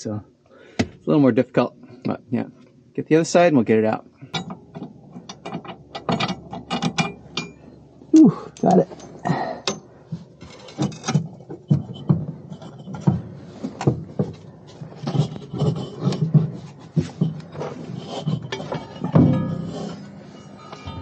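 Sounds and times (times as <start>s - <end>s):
metal bracket knocks and scrapes: 4.3s - 7.6s, 8.9s - 21.0s.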